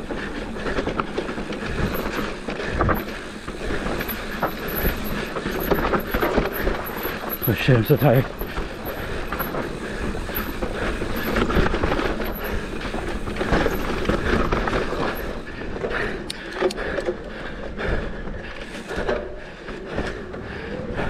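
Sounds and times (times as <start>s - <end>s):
tyre noise on dirt: 0.0s - 15.8s
bike knocks and rattles: 0.0s - 17.4s.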